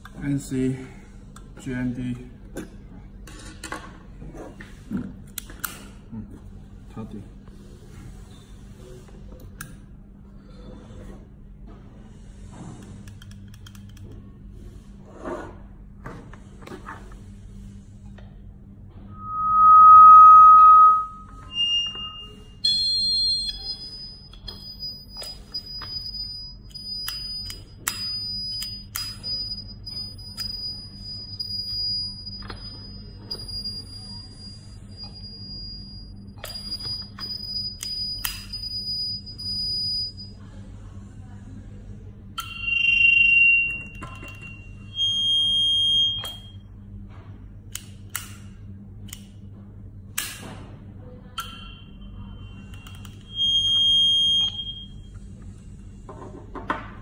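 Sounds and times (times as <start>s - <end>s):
faint high steady tone: 19.1s - 22.6s
short electronic beeps: 19.1s - 25.1s, 52.4s - 55.0s.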